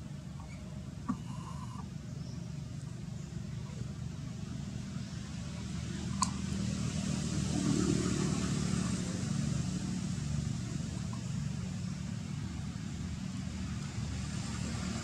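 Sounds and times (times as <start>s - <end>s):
road traffic rumble: 0.0s - 15.0s
vehicle passing: 5.0s - 15.0s.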